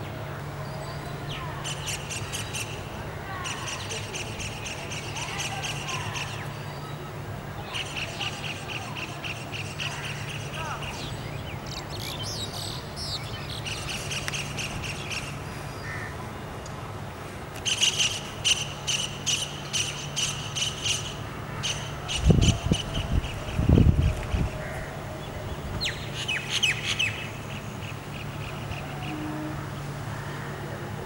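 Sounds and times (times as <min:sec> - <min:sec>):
birds twittering and calling: 0:00.6 - 0:16.1, 0:17.6 - 0:30.6.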